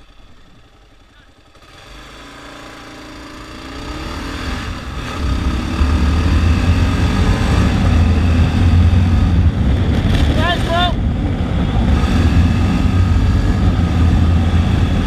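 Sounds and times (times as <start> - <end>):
motorcycle engine accelerating: 0.0 - 15.0
wind noise: 4.3 - 15.0.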